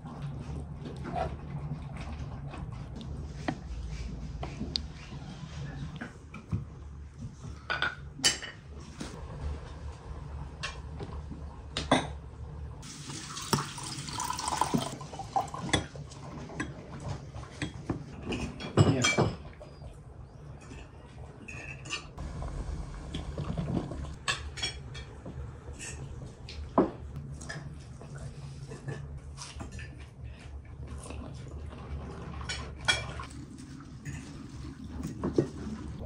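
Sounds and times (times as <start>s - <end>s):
liquid pouring into glass: 12.9s - 15.8s.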